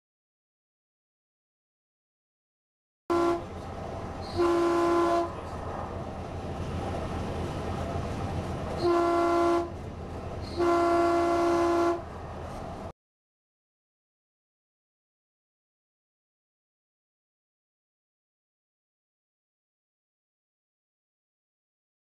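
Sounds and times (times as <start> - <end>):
train horn blasts: 3.1 - 3.6, 4.2 - 5.4, 8.8 - 9.8, 10.4 - 12.1
light rail train rolling: 3.1 - 12.9.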